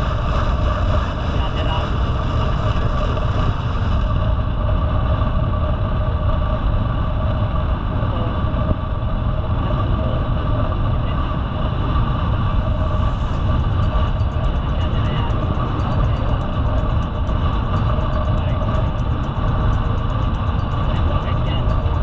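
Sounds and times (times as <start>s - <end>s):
wind on microphone: 0.0s - 22.0s
faint rapid ticking: 12.6s - 22.0s.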